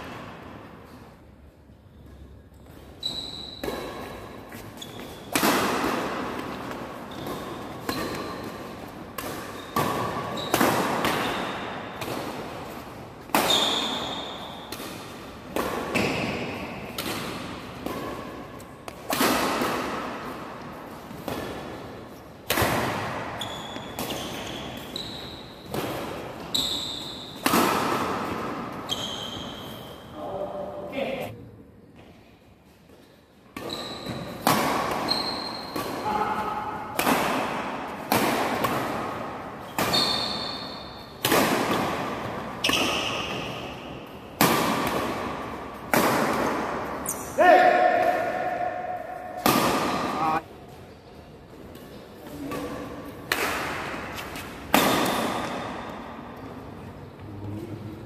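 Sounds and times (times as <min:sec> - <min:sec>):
shoes squeaking on court: 0:01.9 - 0:14.8, 0:23.3 - 0:27.5, 0:28.3 - 0:30.2, 0:31.9 - 0:36.7, 0:39.6 - 0:41.2, 0:42.3 - 0:43.7
rackets hitting shuttlecock: 0:02.6 - 0:29.7, 0:33.5 - 0:50.4, 0:51.7 - 0:56.4.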